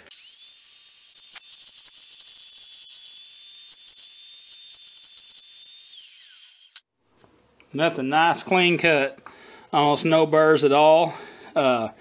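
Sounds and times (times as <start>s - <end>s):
chop saw cutting steel: 0.0s - 6.9s.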